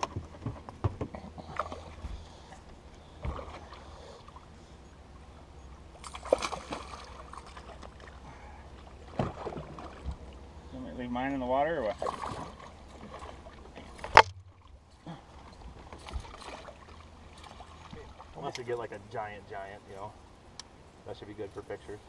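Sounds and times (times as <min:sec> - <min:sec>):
knocks and clicks on a boat: 0:00.0 - 0:02.2, 0:13.0 - 0:14.7
water sloshing: 0:00.0 - 0:19.1
low steady hum: 0:00.0 - 0:22.0.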